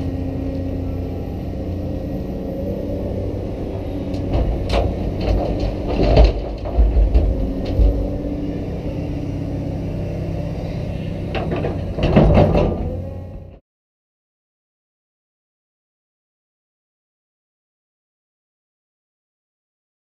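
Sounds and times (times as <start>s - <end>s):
excavator diesel engine running: 0.0s - 13.6s
falling dirt and rock: 4.2s - 8.2s
bucket clunks and rattles: 4.3s - 8.0s, 11.4s - 13.0s.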